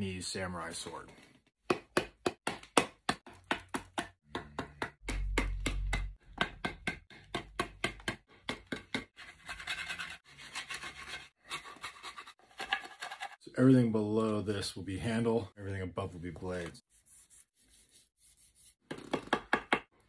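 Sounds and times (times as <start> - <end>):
hatchet chopping wood: 1.6 - 9.1.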